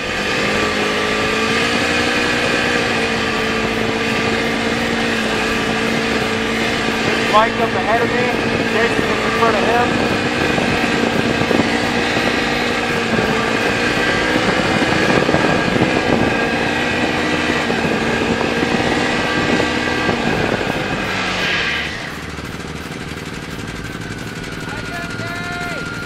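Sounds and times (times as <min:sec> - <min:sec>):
broad rushing noise: 0:00.0 - 0:26.0
snowmobile engine running: 0:00.0 - 0:26.0.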